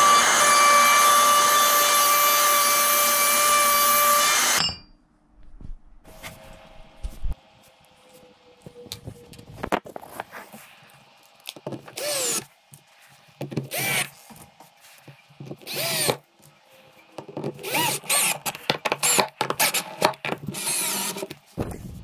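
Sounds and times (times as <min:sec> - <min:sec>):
cordless drill driving screws: 0:12.0 - 0:12.4, 0:13.7 - 0:14.1, 0:15.7 - 0:16.2, 0:17.6 - 0:21.3.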